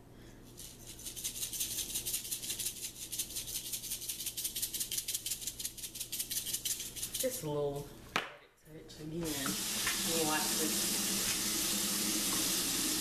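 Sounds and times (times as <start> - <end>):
seasoning shaker rattling: 0.4 - 7.4.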